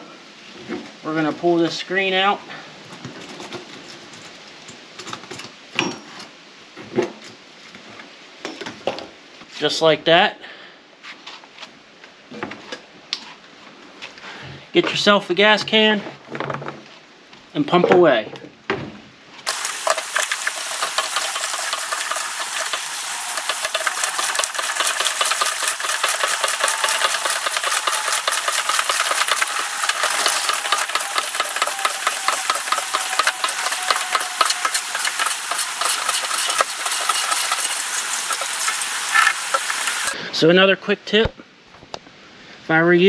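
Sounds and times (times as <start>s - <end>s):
fuel flowing through siphon hose: 19.5s - 40.2s.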